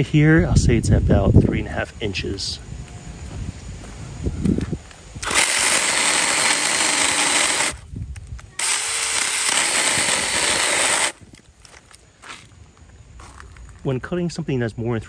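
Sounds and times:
electric chainsaw cutting wood: 0:05.2 - 0:07.8, 0:08.6 - 0:11.2.

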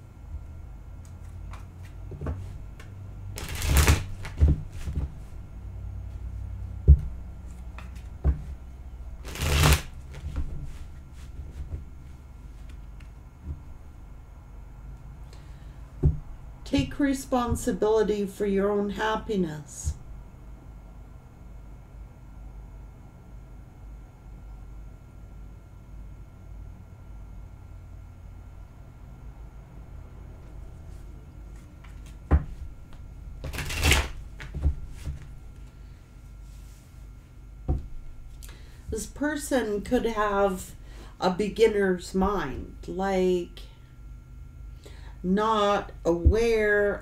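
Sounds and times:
cards riffle shuffling: 0:01.1 - 0:05.0, 0:09.2 - 0:10.8, 0:33.4 - 0:35.2.

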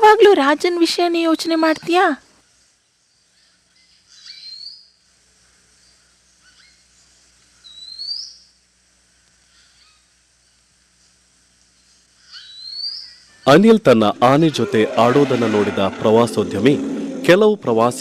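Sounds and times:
faint bird chirps: 0:02.6 - 0:05.0, 0:05.8 - 0:08.6, 0:09.4 - 0:10.6, 0:11.8 - 0:13.6
bird whistle sweeping upward: 0:07.6 - 0:08.4.

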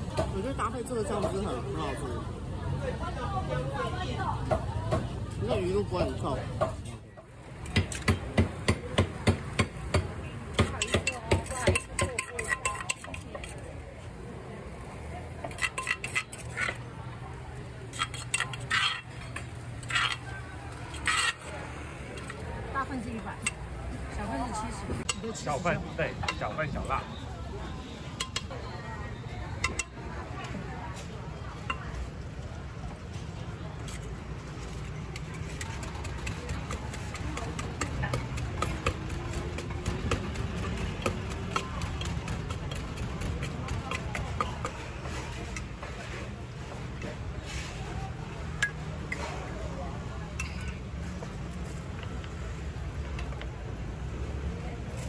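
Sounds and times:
metal spoon scraping clay mortar: 0:10.6 - 0:13.8, 0:15.4 - 0:17.0, 0:17.8 - 0:23.7, 0:33.8 - 0:46.3
wooden pestle pounding in mortar: 0:35.2 - 0:44.7.

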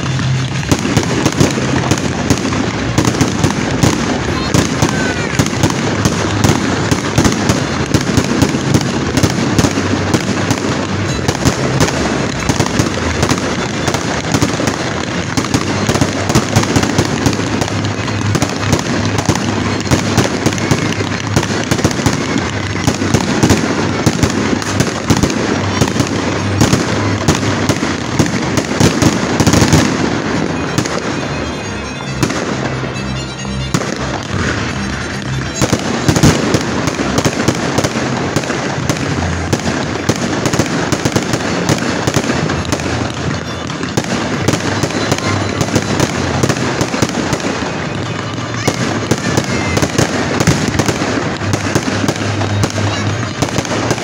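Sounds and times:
fireworks bangs and crackling: 0:00.0 - 0:54.0
music: 0:00.0 - 0:54.0.

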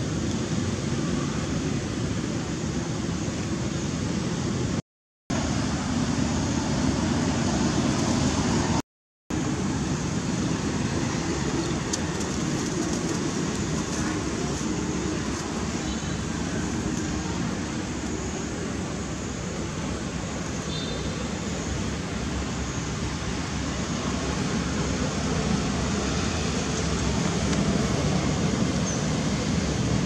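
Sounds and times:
steady rushing noise: 0:00.0 - 0:30.0.

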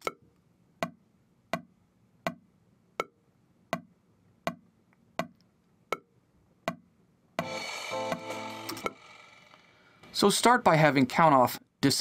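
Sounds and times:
metronome ticks: 0:00.8 - 0:02.4, 0:03.0 - 0:03.9.

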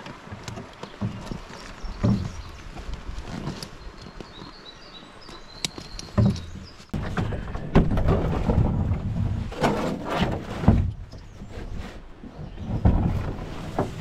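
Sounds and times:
canoe and gear knocks: 0:00.2 - 0:02.5, 0:05.8 - 0:10.0.

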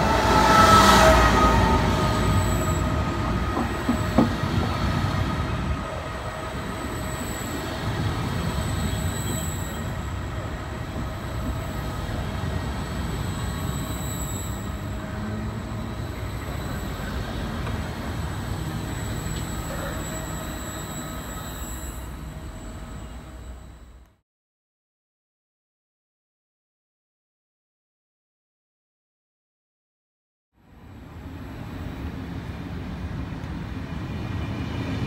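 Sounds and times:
train rolling on rails: 0:00.0 - 0:24.1, 0:30.7 - 0:35.0
wheels squealing: 0:06.5 - 0:10.5, 0:11.2 - 0:23.9.

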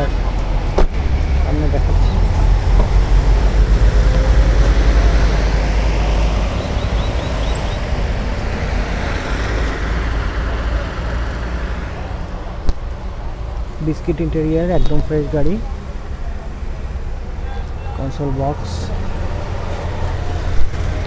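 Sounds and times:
road traffic rumble: 0:00.0 - 0:21.0.

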